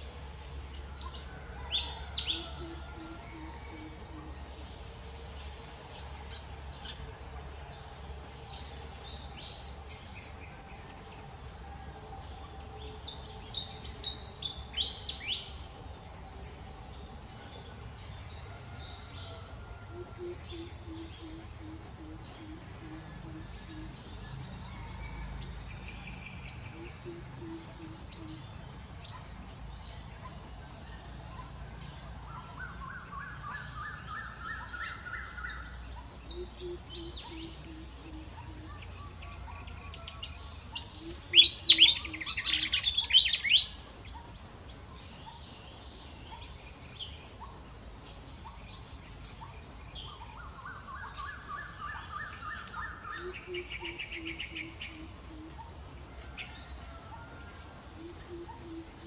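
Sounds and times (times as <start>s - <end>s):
birds calling: 25.5s - 59.0s.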